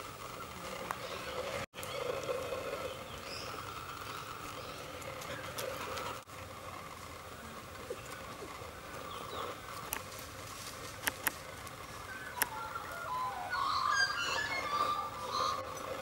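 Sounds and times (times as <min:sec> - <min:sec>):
birds chirping and warbling: 0:00.0 - 0:10.3, 0:11.0 - 0:16.0
sharp clicks: 0:11.0 - 0:11.8.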